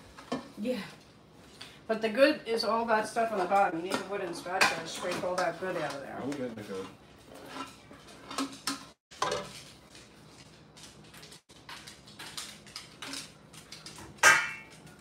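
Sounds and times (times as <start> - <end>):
utensils clinking against pot and bowl: 3.2 - 6.1, 6.7 - 9.6, 11.8 - 15.0
spatula scraping steel pot: 6.6 - 9.0.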